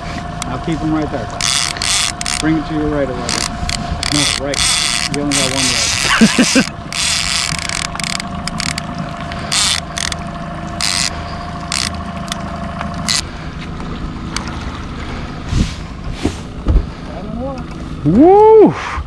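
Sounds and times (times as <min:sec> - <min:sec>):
steady hum: 0:00.0 - 0:18.6
fishing reel ratcheting: 0:01.3 - 0:13.3.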